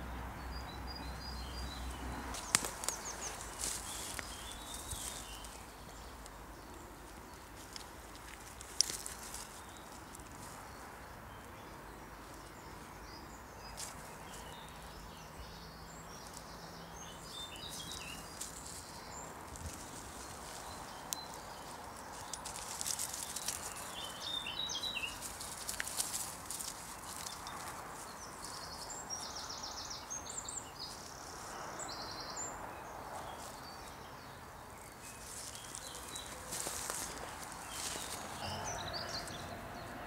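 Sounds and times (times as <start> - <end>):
rustling in dry leaves: 1.4 - 39.9
birds chirping and singing: 11.4 - 32.6.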